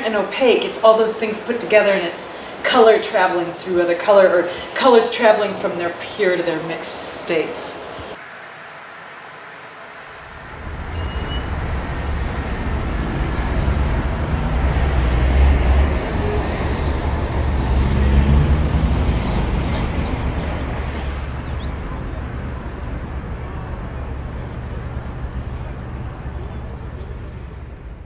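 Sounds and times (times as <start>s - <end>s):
low rumble of vehicle noise: 7.8s - 28.0s
faint high squeal: 10.4s - 12.8s, 18.7s - 22.1s.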